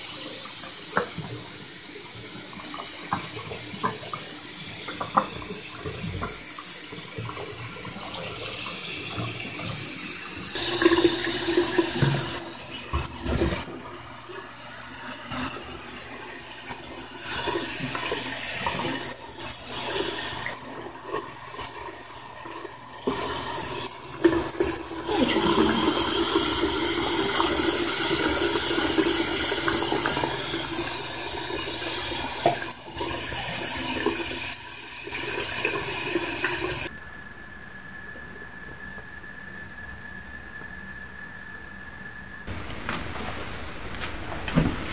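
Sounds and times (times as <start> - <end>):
tap water splashing into basin: 32.3 - 32.8.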